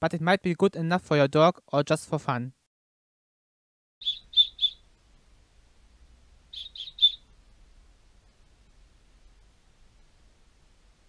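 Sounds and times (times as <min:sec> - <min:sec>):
short high-pitched whistle toots: 0:06.6 - 0:07.2.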